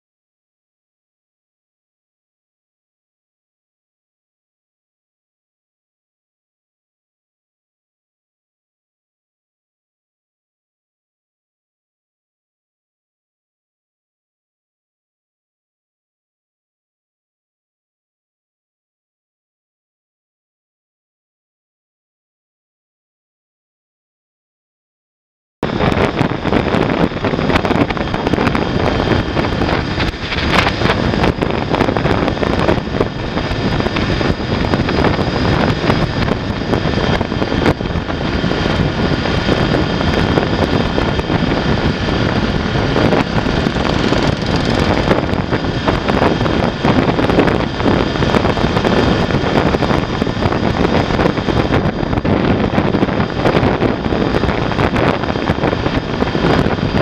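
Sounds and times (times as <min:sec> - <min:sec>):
wind rushing over microphone: 0:25.6 - 0:57.0
motorcycle engine cruising: 0:25.7 - 0:57.0.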